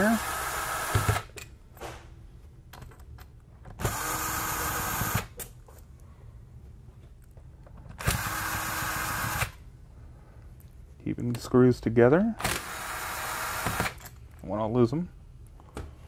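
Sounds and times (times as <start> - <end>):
cordless screwdriver running: 0.0 - 1.3, 3.8 - 5.3, 8.0 - 9.5, 12.5 - 14.0.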